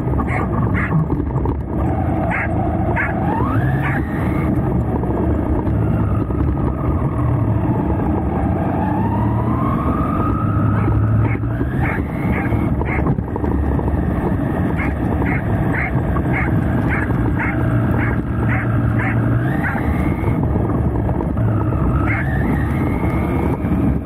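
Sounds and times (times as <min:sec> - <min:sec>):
rc car rumbling on dirt: 0:00.0 - 0:07.2, 0:10.8 - 0:24.0
dog barking: 0:00.2 - 0:01.0, 0:02.3 - 0:03.2, 0:03.8 - 0:04.1, 0:10.8 - 0:13.1, 0:14.8 - 0:19.9, 0:22.0 - 0:22.3.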